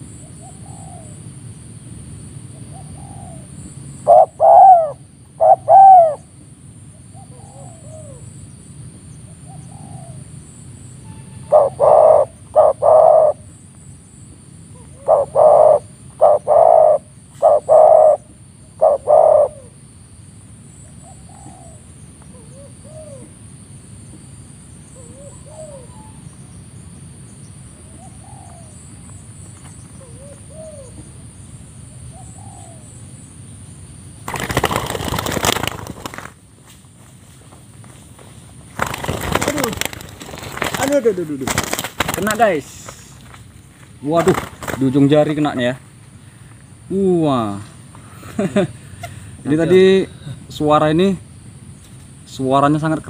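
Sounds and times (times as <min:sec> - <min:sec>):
doves cooing: 0:00.0 - 0:01.4, 0:02.4 - 0:13.9, 0:14.6 - 0:19.9, 0:20.7 - 0:23.6, 0:24.7 - 0:26.6, 0:27.4 - 0:33.3, 0:34.1 - 0:36.4, 0:38.7 - 0:50.8
faint distant dove coos: 0:02.5 - 0:08.5, 0:09.2 - 0:10.4, 0:11.1 - 0:13.5, 0:14.7 - 0:19.8, 0:24.9 - 0:26.5, 0:27.8 - 0:29.0, 0:29.9 - 0:31.1.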